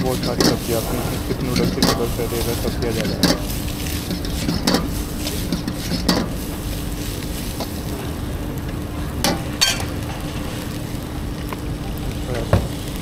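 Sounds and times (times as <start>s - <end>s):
metal clanking on wok: 0.0s - 8.3s, 9.1s - 10.8s
metal spatula stirring and tossing: 0.0s - 10.9s
low burner rumble: 0.0s - 13.0s
noodles sizzling in a wok: 0.0s - 13.0s.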